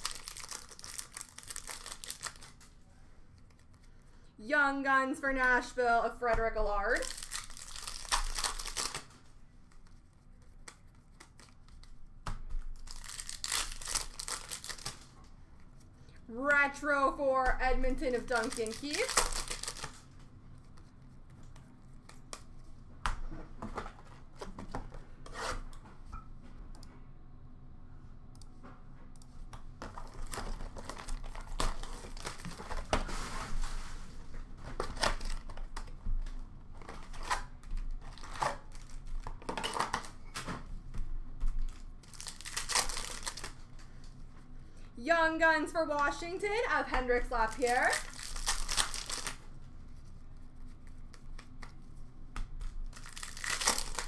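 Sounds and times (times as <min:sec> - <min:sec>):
cards rustling: 0:00.0 - 0:02.8, 0:07.0 - 0:12.0, 0:12.8 - 0:15.1, 0:17.9 - 0:22.5, 0:41.7 - 0:43.6, 0:46.9 - 0:49.4, 0:52.6 - 0:54.0
foil wrappers crinkling: 0:00.0 - 0:02.8, 0:06.9 - 0:09.2, 0:12.7 - 0:15.2, 0:17.9 - 0:20.1, 0:30.0 - 0:32.9, 0:41.6 - 0:43.7, 0:47.0 - 0:49.5, 0:52.6 - 0:54.0.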